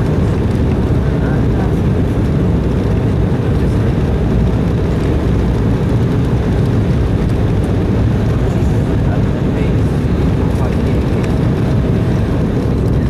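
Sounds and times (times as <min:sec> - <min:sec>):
airliner cabin rumble: 0:00.0 - 0:13.0.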